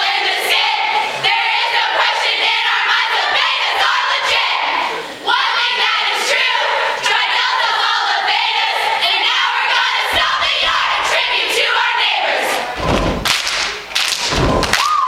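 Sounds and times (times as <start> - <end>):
women singing and chanting: 0.0 - 12.8
sharp claps or stomps: 12.8 - 15.0.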